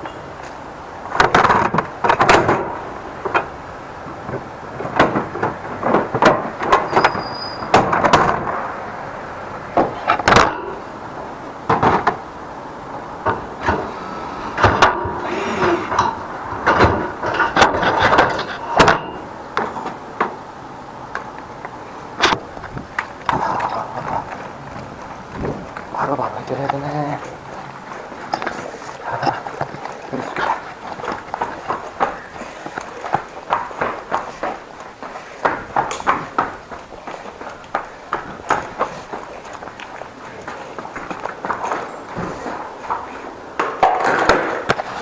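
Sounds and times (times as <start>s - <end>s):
brief high squeak: 6.9s - 7.7s
equipment knocking and rattling: 21.2s - 45.0s.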